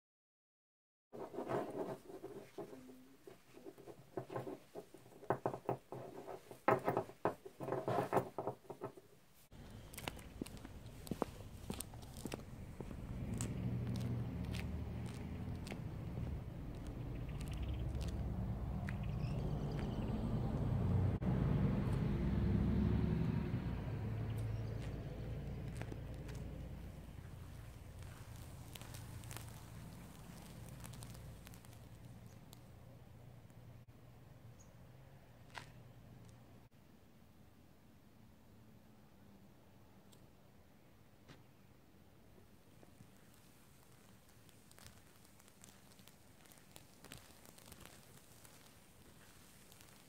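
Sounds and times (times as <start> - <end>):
outdoor background noise: 1.1 - 50.0
steel wool rustling and scratching: 1.2 - 8.5, 25.6 - 32.6, 42.9 - 50.0
passing vehicle rumbling: 9.6 - 31.5.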